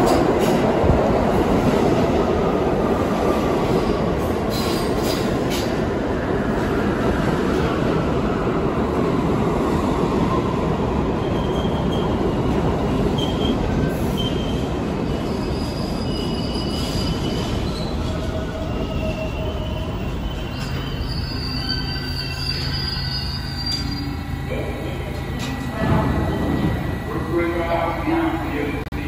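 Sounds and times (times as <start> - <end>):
rumble of train wheels on rail: 0.0 - 29.0
brake and wheel squeals: 15.2 - 24.4.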